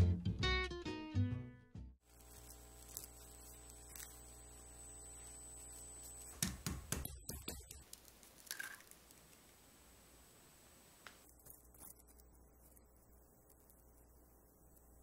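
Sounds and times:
egg cracking: 0:02.1 - 0:05.3, 0:06.1 - 0:09.8, 0:11.0 - 0:15.0
plastic wrap crinkling: 0:02.1 - 0:06.5, 0:07.4 - 0:09.6
faint steady hum: 0:02.1 - 0:15.0.

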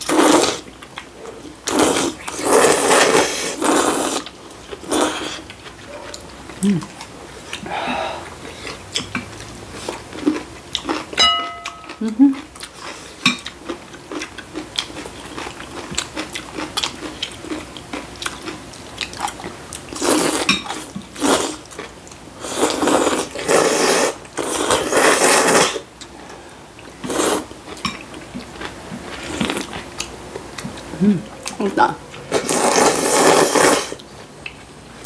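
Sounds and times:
noodles slurped noisily: 0:00.0 - 0:00.7, 0:01.6 - 0:05.6, 0:19.9 - 0:21.7, 0:22.4 - 0:25.9, 0:27.0 - 0:27.6, 0:32.3 - 0:34.0
chewing: 0:00.1 - 0:34.7.

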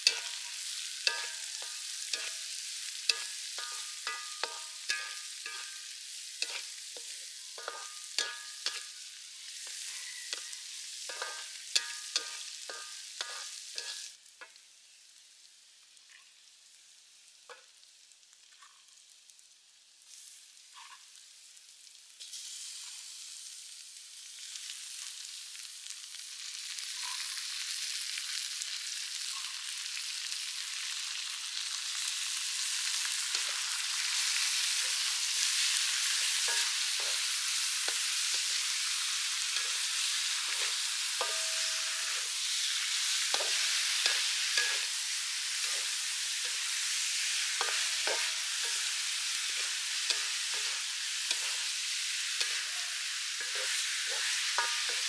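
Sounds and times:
wooden spatula scraping a pan: 0:00.0 - 0:00.4, 0:06.4 - 0:08.9, 0:39.5 - 0:42.6, 0:43.3 - 0:44.9, 0:45.5 - 0:46.7, 0:47.6 - 0:55.0
meat sizzling in a wok: 0:00.0 - 0:55.0.

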